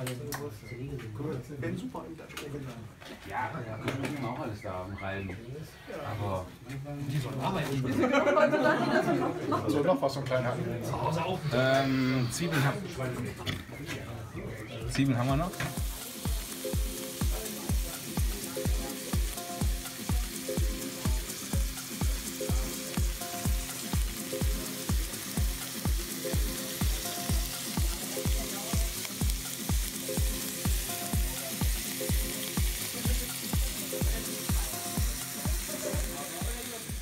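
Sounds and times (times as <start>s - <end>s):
background music with steady beat: 14.9s - 37.0s
bacon sizzling in a skillet: 14.9s - 37.0s.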